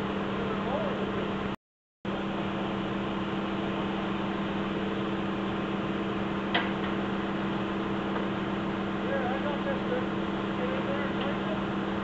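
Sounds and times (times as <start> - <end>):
crane engine humming: 0.0 - 12.0.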